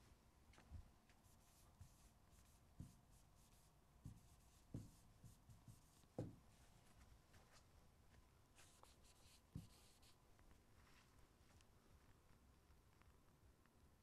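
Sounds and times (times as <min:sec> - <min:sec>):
pen scratching on a screen: 0:01.4 - 0:06.3, 0:08.6 - 0:10.2
pen knocking on a surface: 0:04.0 - 0:05.0, 0:06.2 - 0:06.4, 0:09.6 - 0:09.8.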